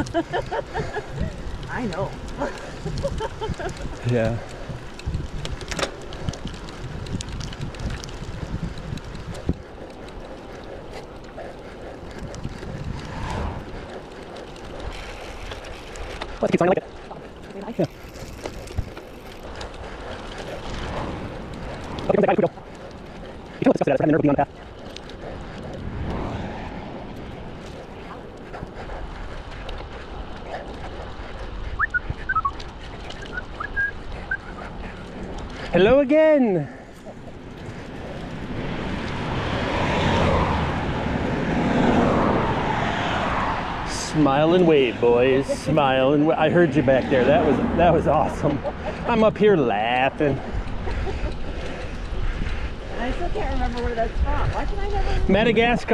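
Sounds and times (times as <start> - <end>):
bicycle road noise: 0.0 - 55.9
bike tyres on asphalt: 0.0 - 55.9
wind rushing over microphone: 0.0 - 55.9
person whistling short notes: 31.8 - 32.5, 33.3 - 34.5.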